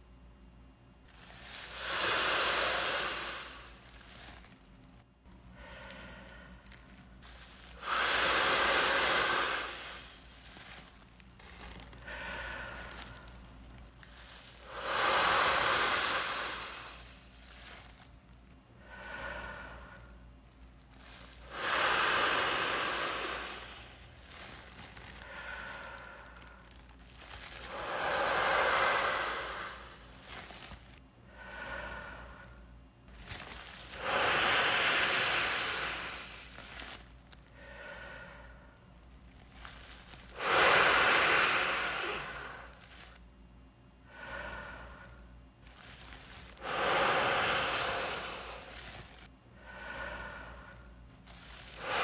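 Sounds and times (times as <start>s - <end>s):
man breathing in: 1.1s - 4.5s, 5.6s - 20.3s, 20.9s - 38.8s, 39.6s - 43.2s, 44.0s - 52.0s
man blowing into plastic bag: 1.1s - 4.6s, 6.8s - 18.2s, 20.9s - 32.0s, 33.1s - 38.1s, 39.4s - 43.2s, 45.7s - 50.5s, 51.2s - 52.0s.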